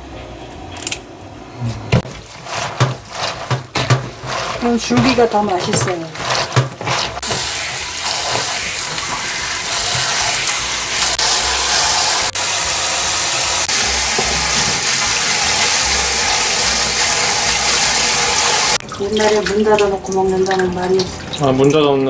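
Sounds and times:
hands rubbing leaves in water: 0:02.0 - 0:11.6
tap running into sink: 0:02.0 - 0:12.2, 0:13.7 - 0:21.2.

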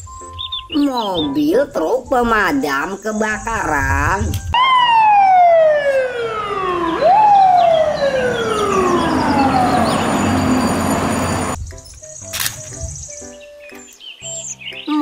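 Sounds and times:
fire truck siren wailing: 0:04.6 - 0:11.6.

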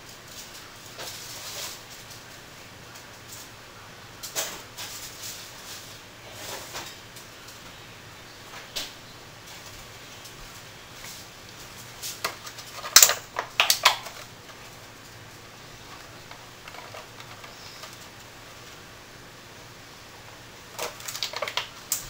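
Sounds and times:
faint low hum: 0:00.0 - 0:22.0
sharp clicks and knocks of handling: 0:11.5 - 0:14.6, 0:20.8 - 0:22.0.

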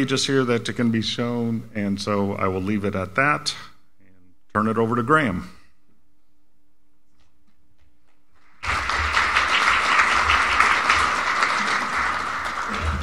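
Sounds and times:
audience applauding: 0:08.4 - 0:13.0.

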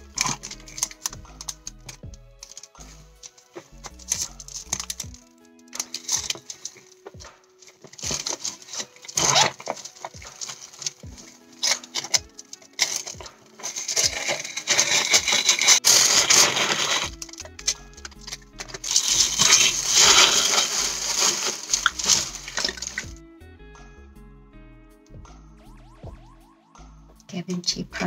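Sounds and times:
light handling noises: 0:00.0 - 0:23.1
tissue paper rustling: 0:05.7 - 0:23.1.

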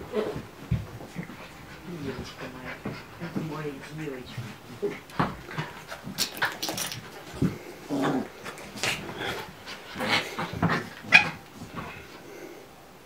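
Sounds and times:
animals growling and yelping: 0:00.0 - 0:00.5, 0:04.6 - 0:12.2
animals scuffling: 0:00.0 - 0:12.5.

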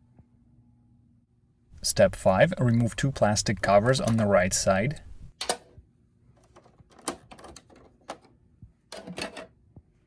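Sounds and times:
plastic covers clicking and rattling: 0:06.4 - 0:08.3, 0:08.9 - 0:09.6.

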